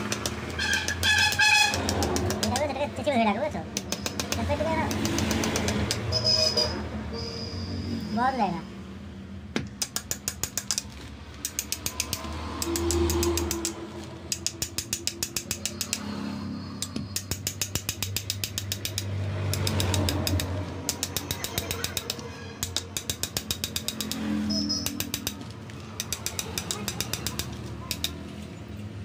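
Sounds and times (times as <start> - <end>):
ratchet wrench clicking: 0.0 - 2.7, 3.7 - 6.3, 9.7 - 16.2, 16.8 - 28.3.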